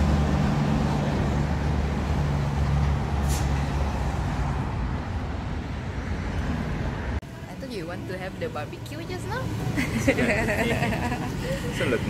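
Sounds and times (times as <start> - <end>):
brief high hiss: 3.2 - 3.6.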